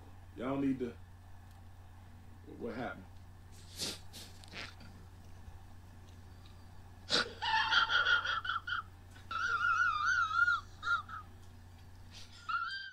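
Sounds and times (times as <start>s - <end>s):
high-pitched whimpering whine: 6.5s - 11.5s, 12.1s - 12.9s.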